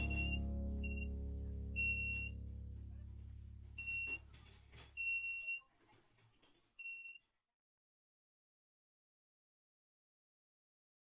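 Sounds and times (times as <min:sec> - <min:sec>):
alarm buzzer beeping: 0:00.0 - 0:01.1, 0:01.8 - 0:02.4, 0:03.8 - 0:04.2
low background music chord: 0:00.0 - 0:04.4.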